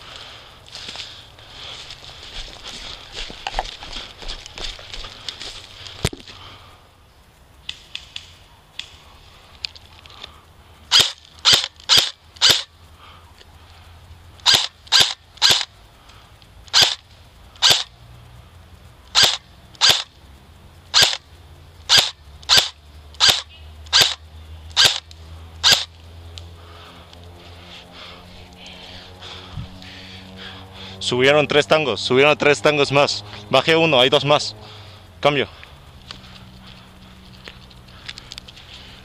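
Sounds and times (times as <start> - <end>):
airsoft rifle shots: 10.9 - 12.7, 14.4 - 15.7, 16.7 - 17.0, 17.6 - 18.0, 19.1 - 20.2, 20.9 - 21.3, 21.9 - 25.9.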